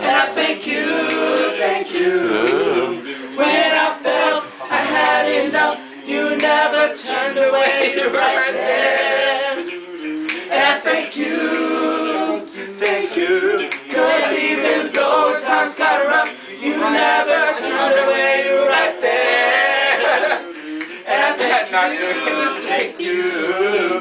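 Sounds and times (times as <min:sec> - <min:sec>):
group singing a cappella: 0:00.0 - 0:24.0.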